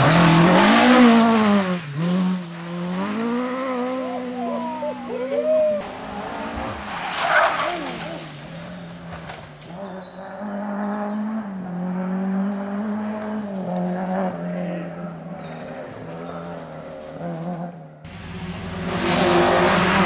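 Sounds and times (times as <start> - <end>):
rally car engine: 0.0 - 20.0
car crashing into undergrowth: 7.4 - 9.8.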